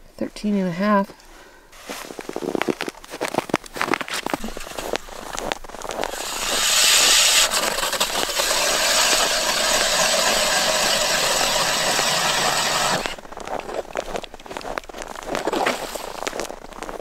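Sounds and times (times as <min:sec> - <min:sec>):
power ice auger drilling: 0:04.2 - 0:13.2, 0:15.4 - 0:16.4.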